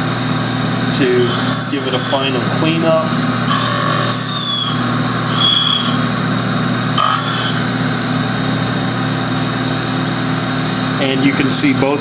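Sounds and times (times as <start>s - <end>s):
grinder motor hum: 0.0s - 11.0s
high grinding squeals: 1.0s - 8.2s.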